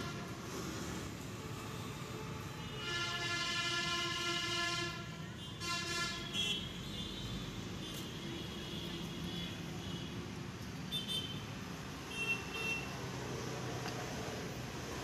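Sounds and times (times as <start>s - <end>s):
rumble of passing traffic: 0.0s - 15.0s
vehicle horn honking: 2.6s - 7.2s.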